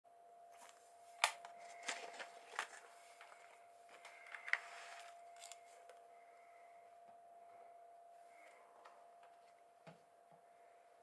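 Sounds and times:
faint steady hum: 0:00.1 - 0:11.0
paper rustling: 0:00.6 - 0:05.8.

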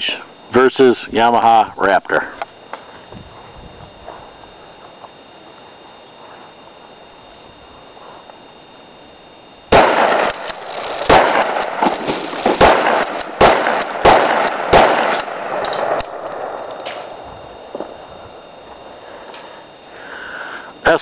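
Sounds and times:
shotgun shots echoing: 0:09.7 - 0:17.1.

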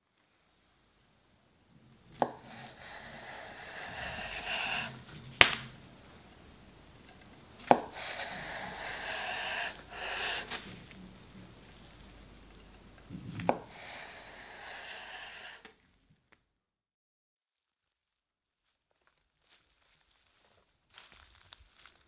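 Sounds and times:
knife slicing mushroom: 0:02.1 - 0:05.9, 0:07.5 - 0:11.0, 0:13.3 - 0:15.6.

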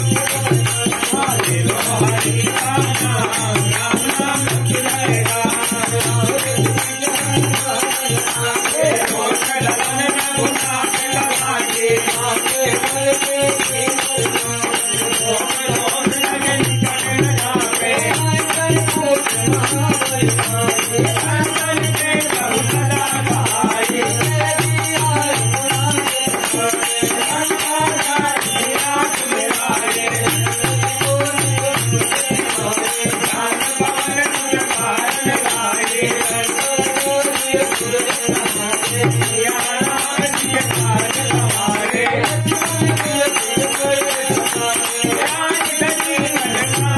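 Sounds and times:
hand drum rhythm: 0:00.0 - 0:46.9
harmonium: 0:00.0 - 0:46.9
man singing: 0:00.0 - 0:46.9.

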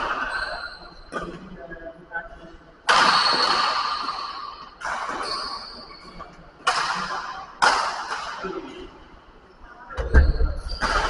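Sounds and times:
racket hitting shuttlecock: 0:02.9 - 0:05.3, 0:06.6 - 0:08.4.

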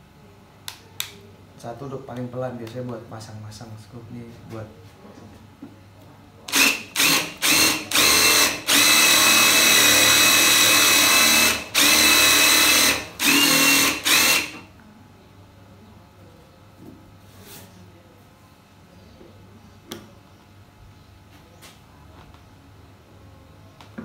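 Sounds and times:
impact driver motor whining: 0:06.5 - 0:14.6.

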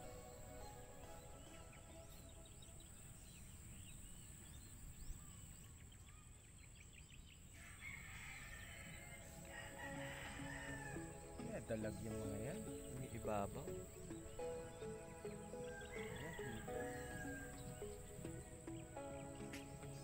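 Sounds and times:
small birds chirping: 0:00.0 - 0:20.0
rooster crowing: 0:07.6 - 0:11.3, 0:15.5 - 0:17.9.

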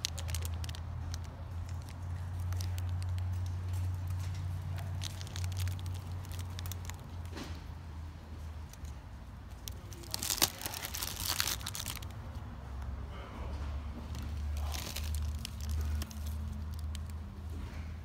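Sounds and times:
metallic foil crinkling: 0:00.0 - 0:07.3, 0:09.5 - 0:12.1, 0:14.1 - 0:17.2.

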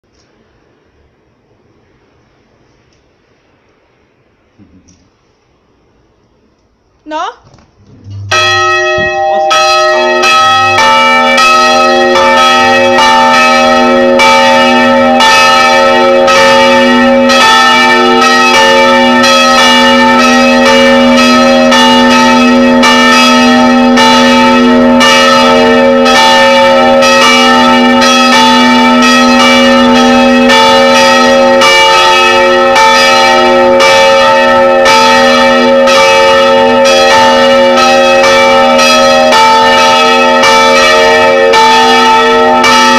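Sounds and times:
church bells pealing: 0:08.2 - 0:42.9.

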